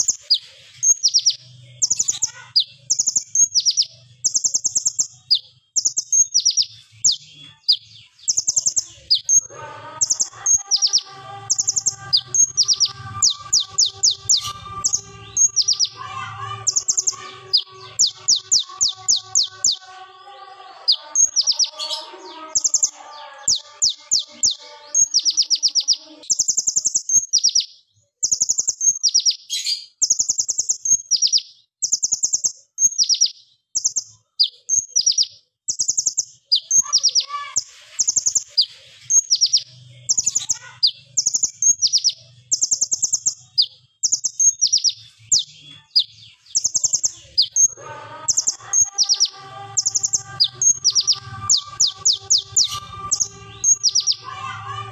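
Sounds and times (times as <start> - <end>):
bird singing rapid trills: 0.0 - 54.9.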